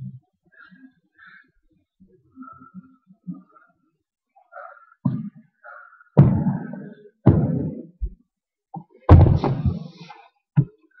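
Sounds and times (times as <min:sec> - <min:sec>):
heavy thuds: 0:09.1 - 0:10.0.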